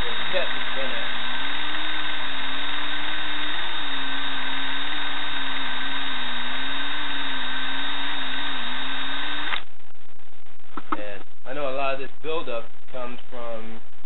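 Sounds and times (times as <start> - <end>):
drill motor hum: 0.0 - 9.8.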